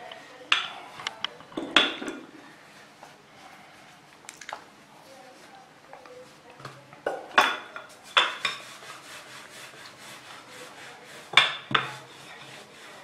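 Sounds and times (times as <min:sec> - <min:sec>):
soft rubbing of dough: 0:02.2 - 0:13.0.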